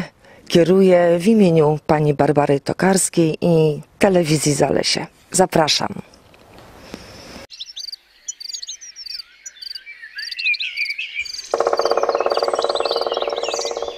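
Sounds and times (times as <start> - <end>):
birds chirping: 7.0 - 13.9
frog trilling: 11.2 - 13.9.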